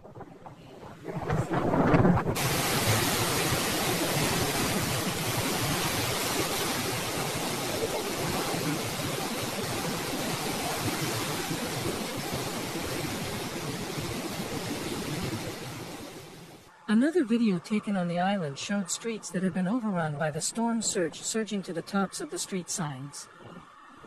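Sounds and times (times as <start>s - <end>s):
rain: 0.0s - 16.9s
wind: 0.0s - 24.0s.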